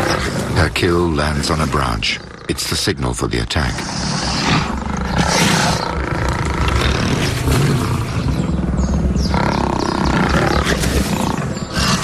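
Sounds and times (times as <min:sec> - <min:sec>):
lions growling: 0:00.0 - 0:12.0.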